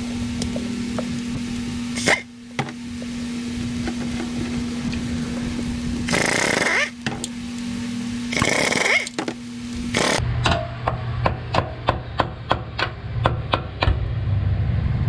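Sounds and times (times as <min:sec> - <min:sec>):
steady hum: 0:00.0 - 0:15.0
handheld power tool bursts: 0:02.0 - 0:02.3, 0:06.1 - 0:07.1, 0:08.3 - 0:10.2.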